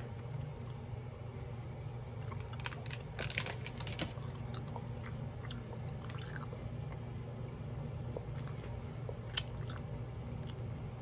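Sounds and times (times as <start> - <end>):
steady low hum: 0.0 - 11.0
mouth chewing gummy candy: 2.2 - 7.1, 8.0 - 11.0.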